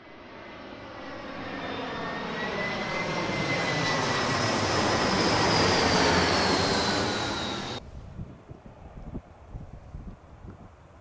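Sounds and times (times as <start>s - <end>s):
jet engine roar: 0.0s - 7.8s
high whine gliding down: 0.4s - 7.8s.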